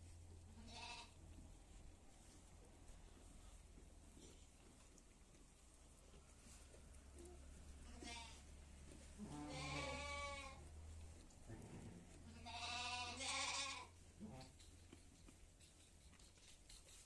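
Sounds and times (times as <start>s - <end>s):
sheep and goats bleating: 0.5s - 1.2s, 7.8s - 8.5s, 9.2s - 10.6s, 12.2s - 14.5s.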